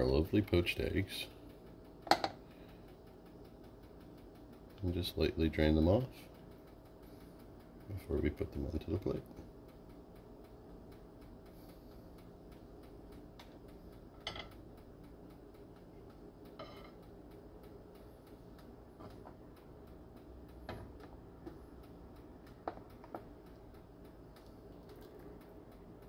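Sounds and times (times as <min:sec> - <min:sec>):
steady fast ticking: 0:00.0 - 0:26.0
water simmering in a pan: 0:09.4 - 0:26.0.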